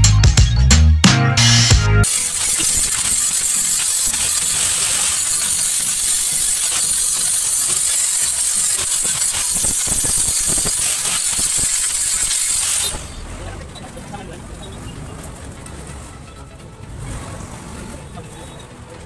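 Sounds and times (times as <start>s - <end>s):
welding arc crackling and sizzling: 2.0s - 13.5s.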